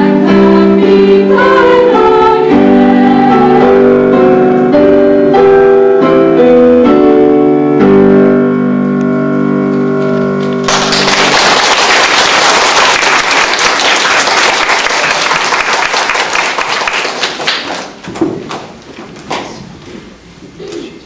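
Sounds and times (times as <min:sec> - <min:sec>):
boys' choir singing: 0:00.0 - 0:04.3
audience applause: 0:10.6 - 0:18.6.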